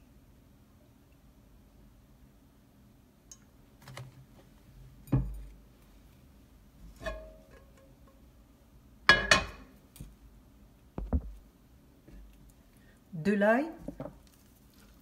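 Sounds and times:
frying pan clanking on metal: 9.1s - 9.7s.

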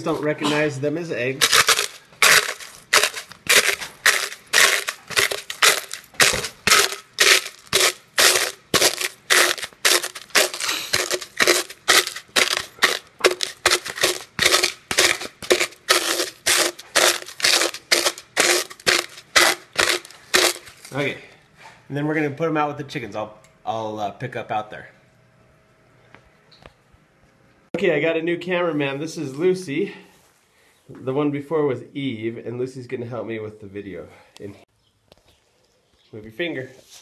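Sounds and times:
eggshells crunching in plastic container: 1.4s - 21.0s.

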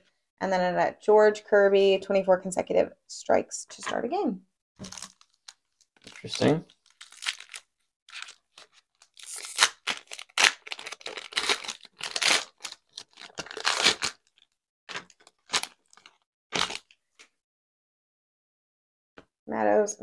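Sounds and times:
foil wrapper tearing: 4.8s - 16.9s.

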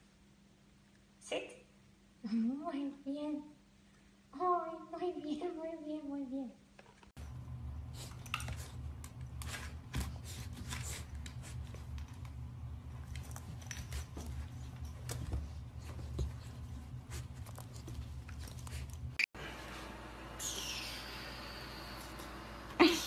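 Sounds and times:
puppies play-fighting on hard floor: 7.1s - 19.8s
low steady hum: 7.2s - 23.0s.

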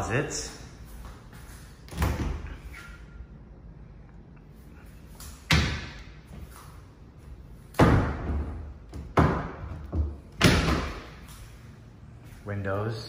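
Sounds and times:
closet doors knocking and banging: 7.8s - 11.2s.

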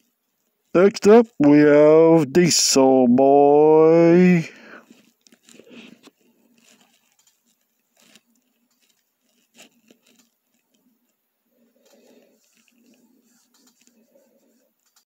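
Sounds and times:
soft clicks and rustles: 4.8s - 15.0s.

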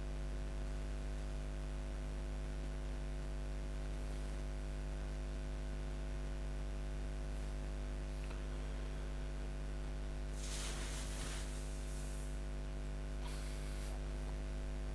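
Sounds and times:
electrical mains hum with hiss: 0.0s - 14.9s
soft rushes of noise: 10.4s - 12.4s.

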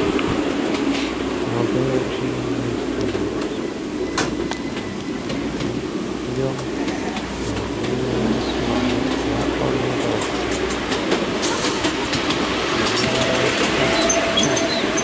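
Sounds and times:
miniature train rumbling: 0.0s - 15.0s
wheels clicking over rails: 6.6s - 15.0s.

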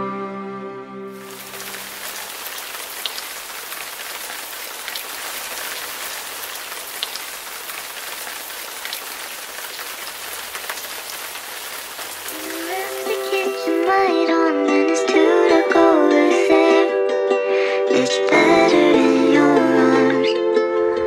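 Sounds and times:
falling water hissing: 1.2s - 14.0s.

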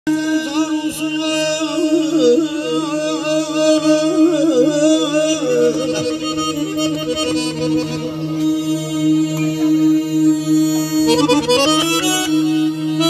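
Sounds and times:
held drone note: 4.2s - 13.0s
button accordion melody: 5.7s - 13.0s.

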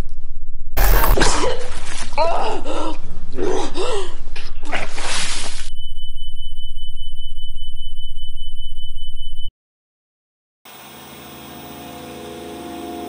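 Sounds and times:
harsh electronic buzz with whine: 0.8s - 1.2s, 10.7s - 13.0s.

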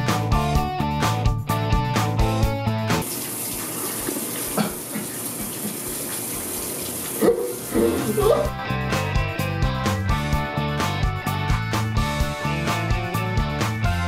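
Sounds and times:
shower water spraying: 3.0s - 8.5s
guitar music: 7.7s - 14.0s.

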